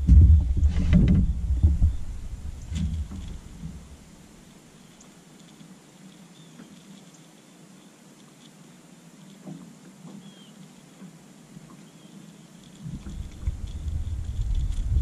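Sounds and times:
faint knocks and clicks: 0.1s - 3.9s.

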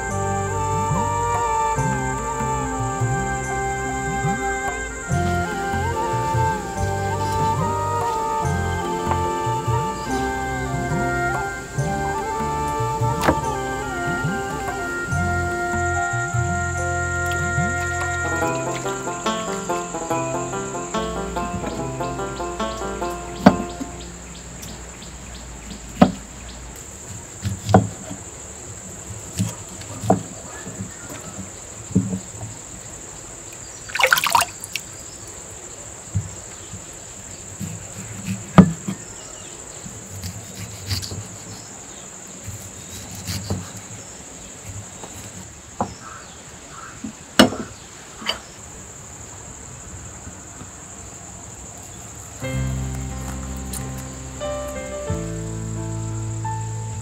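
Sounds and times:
insects shrilling: 33.8s - 35.4s
knife slicing on wooden board: 40.2s - 41.6s.

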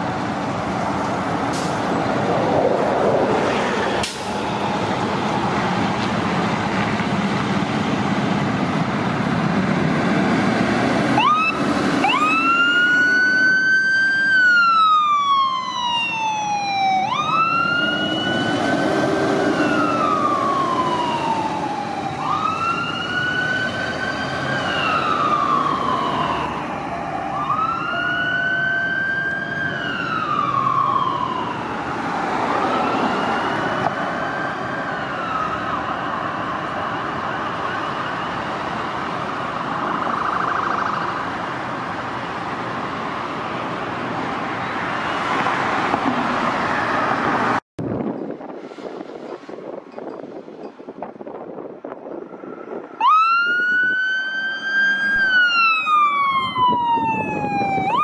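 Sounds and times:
fire truck engine running: 4.0s - 32.2s
siren wailing: 11.2s - 41.5s, 52.9s - 58.0s.

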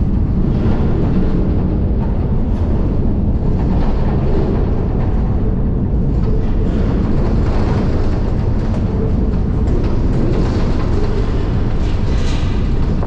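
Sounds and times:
train wheels rumbling on rail: 0.0s - 13.0s
rattles of freight car body: 5.4s - 13.0s.

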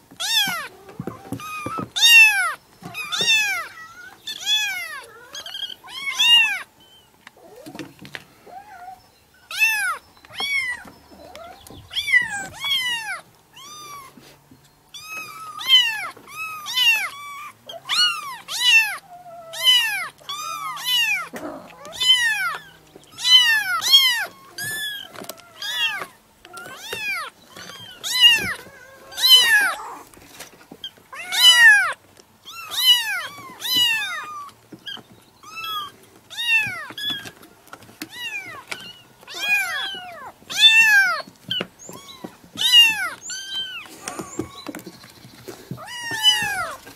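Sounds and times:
kittens mewing: 15.0s - 30.1s, 31.1s - 37.4s, 38.0s - 44.9s, 45.5s - 46.9s.

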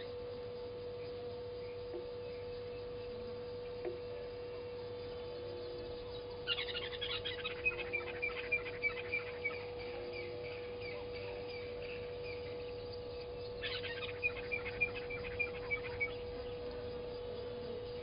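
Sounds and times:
steady hum: 0.0s - 18.0s
lapwing calling sharp notes: 4.9s - 18.0s.

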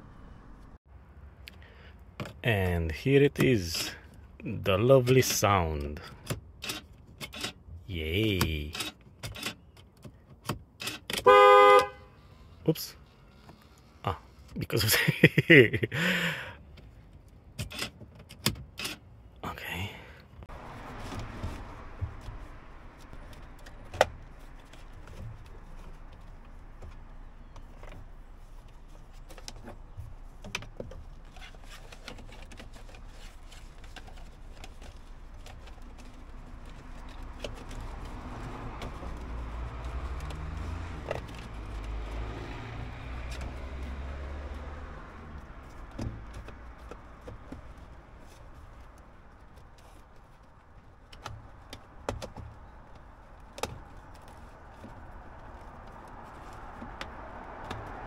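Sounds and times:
low vehicle rumble: 0.0s - 2.2s, 19.1s - 58.0s.

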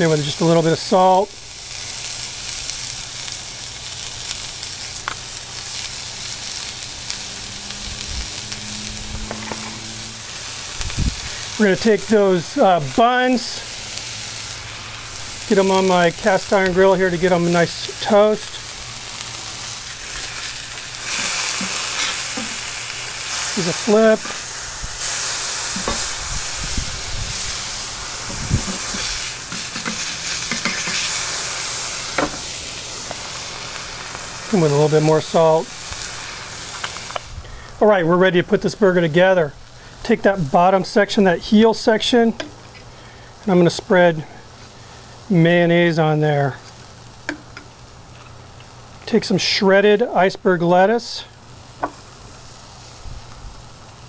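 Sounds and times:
burger patties sizzling on a griddle: 0.0s - 54.0s
metal spatula scraping griddle: 8.6s - 10.4s, 19.8s - 24.4s, 27.4s - 31.3s.

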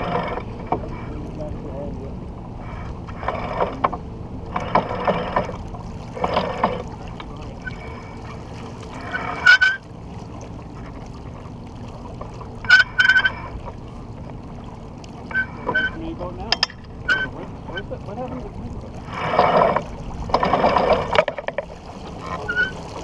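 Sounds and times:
voices: 0.0s - 5.2s, 15.2s - 20.0s, 22.0s - 23.0s
water rushing past a boat: 0.0s - 23.0s
wind: 0.0s - 23.0s.

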